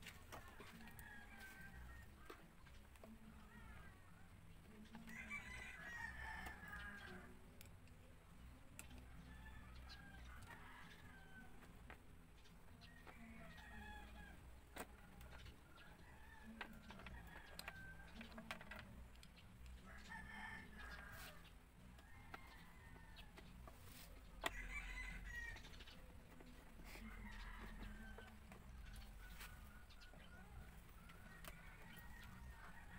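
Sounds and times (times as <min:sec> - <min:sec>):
rooster crowing: 0:24.4 - 0:25.7.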